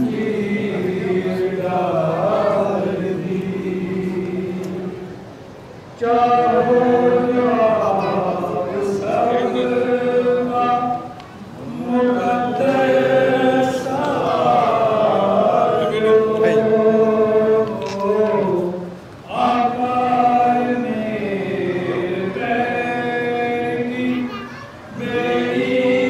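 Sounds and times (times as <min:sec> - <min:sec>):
group of voices chanting in unison: 0:06.0 - 0:26.0.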